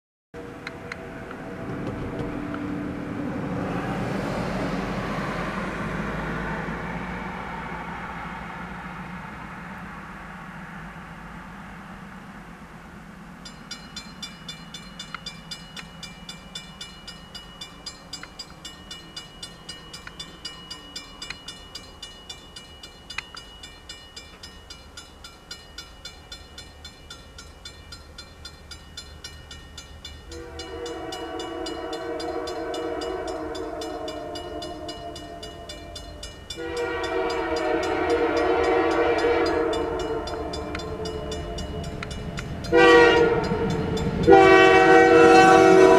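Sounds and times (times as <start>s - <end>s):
level crossing bell ringing: 13.5s - 44.5s
locomotive air horn blasts: 30.3s - 36.0s, 36.6s - 41.8s, 42.7s - 45.9s.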